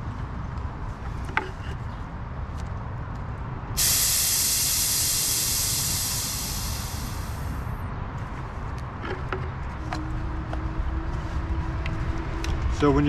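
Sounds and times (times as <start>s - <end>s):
air hissing from valve: 3.8s - 7.7s.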